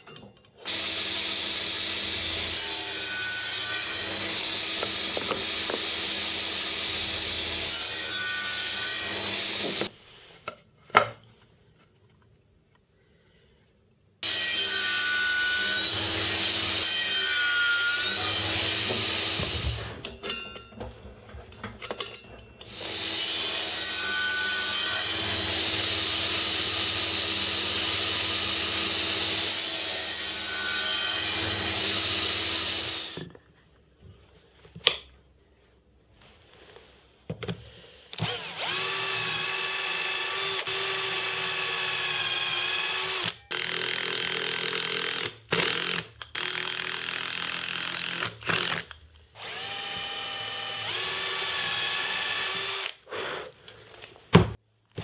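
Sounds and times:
cordless drill whining: 0.6s - 2.5s, 4.1s - 7.6s, 31.2s - 33.3s, 38.1s - 53.0s
table saw cutting plywood: 0.6s - 9.9s, 14.2s - 20.0s, 22.6s - 33.3s, 38.2s - 44.5s.

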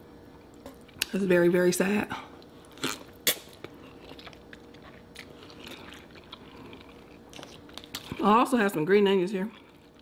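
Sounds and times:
soft wet chewing: 2.3s - 8.4s, 9.5s - 10.0s.

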